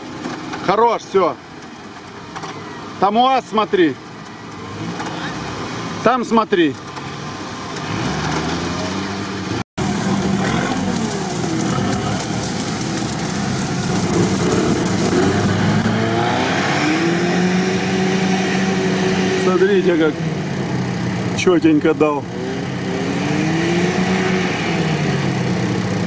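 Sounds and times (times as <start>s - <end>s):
engine revving hard: 7.8s - 26.0s.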